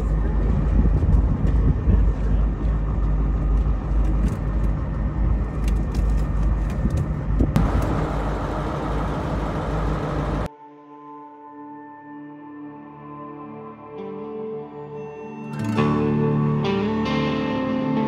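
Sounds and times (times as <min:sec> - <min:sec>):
wind buffeting microphone: 0:00.0 - 0:10.5
boat engine rumbling: 0:06.2 - 0:10.5.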